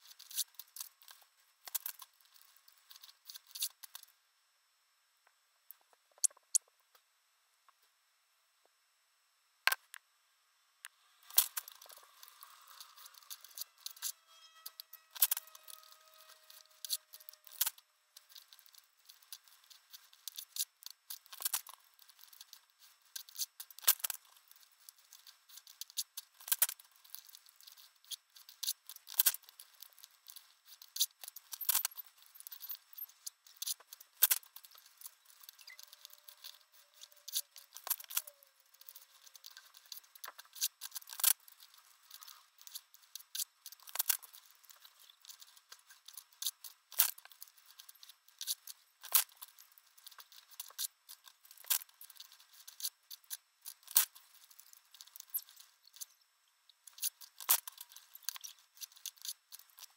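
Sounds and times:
paper tearing and rustling: 11.2s - 52.9s.

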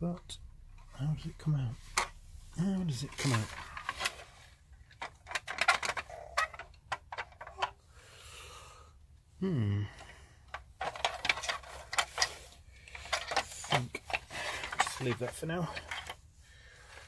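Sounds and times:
plastic toy parts clicking: 4.9s - 7.8s, 10.5s - 16.2s.

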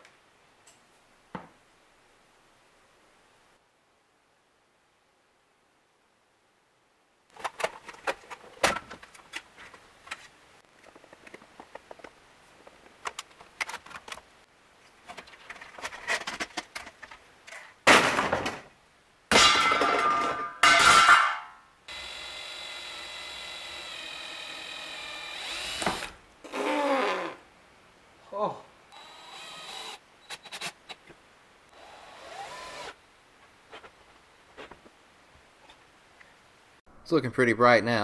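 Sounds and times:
clicks and knocks of parts handled: 7.3s - 14.3s, 15.0s - 17.8s
power drill running: 21.9s - 26.2s, 28.9s - 30.4s, 31.7s - 33.0s.

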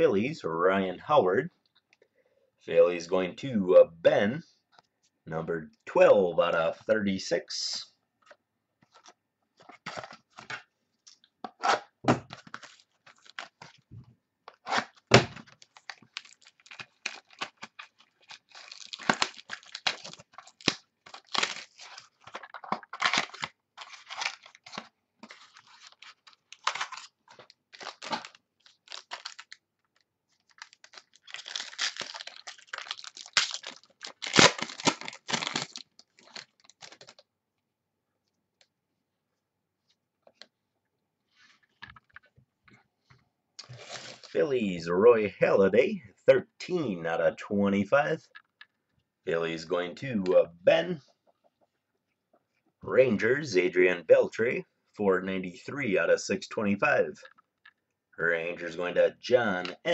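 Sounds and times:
plastic and tape crinkling and tearing: 8.9s - 13.8s, 14.5s - 37.2s, 43.6s - 44.4s
trading cards rustling: 14.5s - 37.2s.

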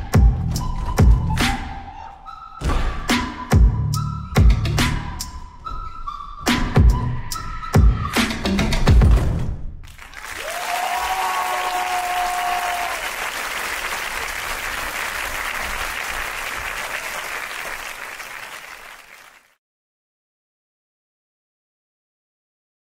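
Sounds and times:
audience applause: 9.9s - 19.6s
crowd cheering: 9.9s - 19.6s.

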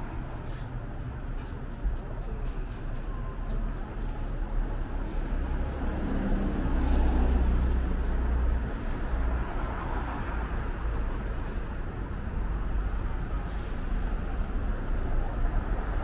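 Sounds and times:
street noise: 0.0s - 16.0s.

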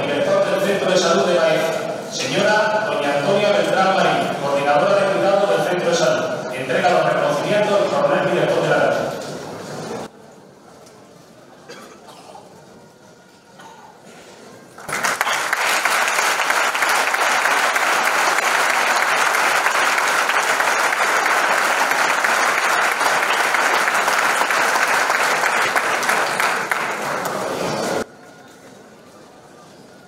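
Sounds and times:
crowd applauding: 14.7s - 28.1s.

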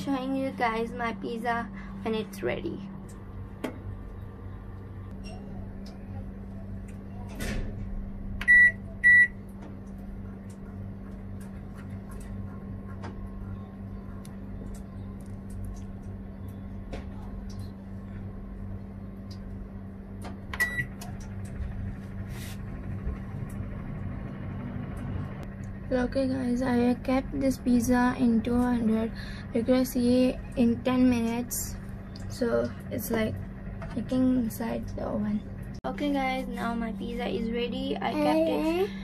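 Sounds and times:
oven humming: 0.0s - 39.0s
keypad beeps: 8.4s - 9.4s, 20.6s - 20.9s.

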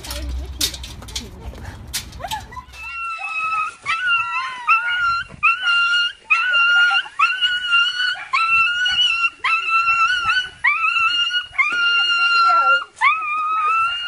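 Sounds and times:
dog whining: 2.2s - 14.0s.

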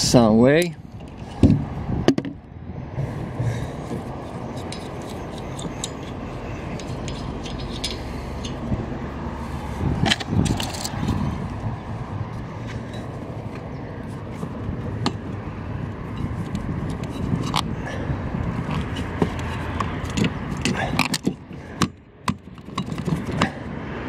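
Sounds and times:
steady background noise: 0.0s - 24.0s
metal knocks: 3.0s - 8.8s
ratchet clicking: 4.2s - 8.7s.

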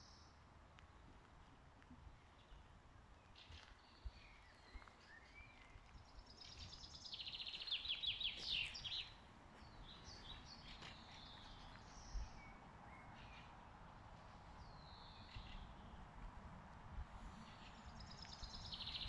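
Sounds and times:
songbirds singing: 2.0s - 16.2s, 17.2s - 19.0s.

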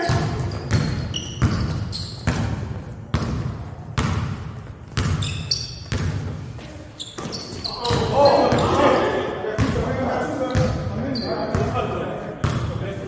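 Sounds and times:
basketballs bouncing on hardwood floor: 0.0s - 8.8s.

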